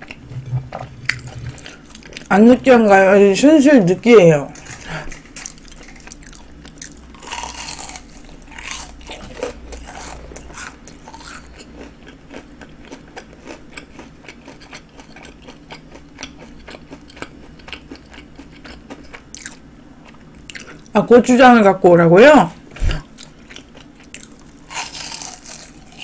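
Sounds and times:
crisp chewing crunches: 4.6s - 20.9s, 23.0s - 26.0s
crunching bites of fried shrimp: 5.2s - 19.7s, 23.1s - 26.0s.

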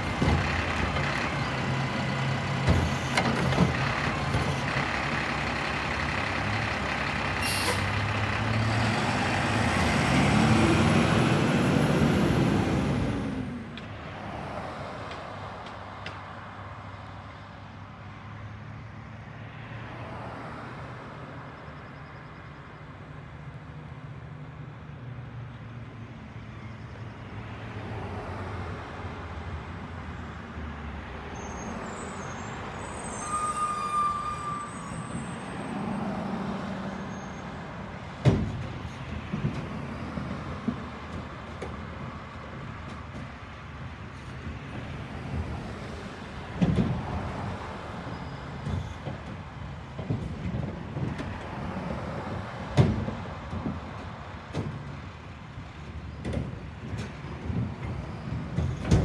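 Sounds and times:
truck engine rumble: 0.0s - 19.2s, 28.0s - 59.0s
brief squeal: 31.3s - 36.2s, 36.8s - 37.6s, 48.1s - 49.0s.

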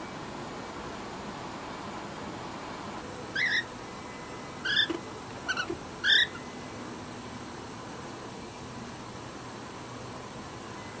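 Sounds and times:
cockatiel chirping: 3.4s - 3.7s, 4.6s - 6.4s.

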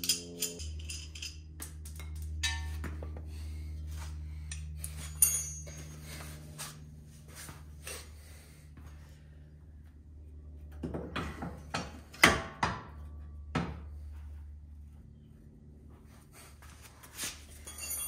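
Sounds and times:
sharp ringing metallic clink: 0.0s - 1.4s, 4.5s - 6.0s, 17.6s - 18.0s
metal tools clinking and knocking: 0.0s - 2.8s, 4.5s - 6.0s, 17.6s - 18.0s
steady low hum: 0.0s - 18.0s.

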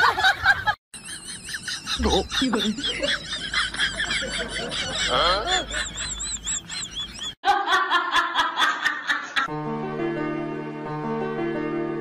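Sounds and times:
woman laughing hard: 0.0s - 9.5s
outdoor voices: 1.8s - 7.3s
plucked strings and piano music: 9.5s - 12.0s.

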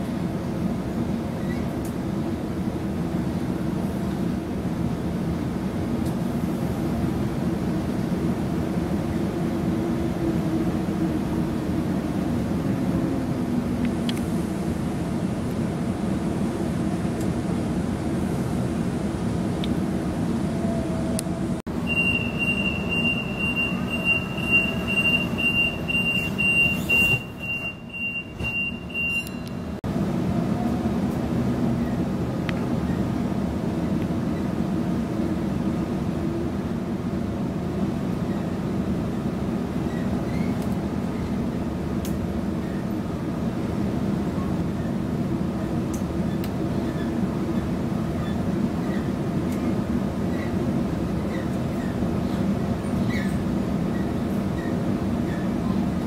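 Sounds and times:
train rumble: 0.0s - 56.0s
high-pitched tone: 21.8s - 29.6s.

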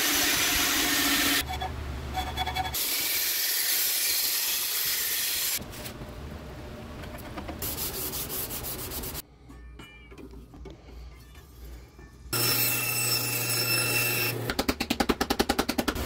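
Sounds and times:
hand sanding strokes: 7.6s - 9.2s.

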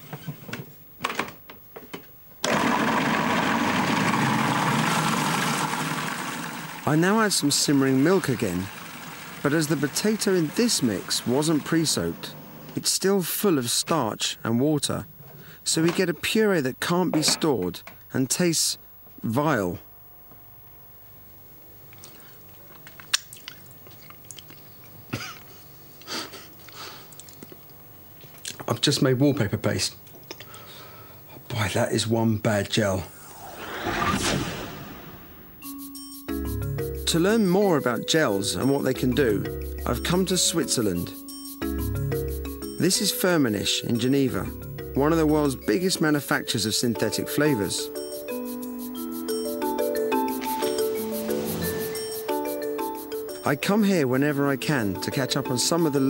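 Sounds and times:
food processor motor running: 2.4s - 12.2s
wet mouth clicks and smacks: 23.0s - 24.7s, 27.1s - 27.6s.

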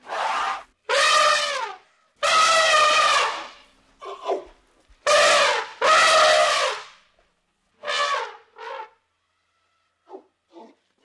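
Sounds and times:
elephant trumpeting: 0.0s - 3.6s, 5.1s - 6.8s.

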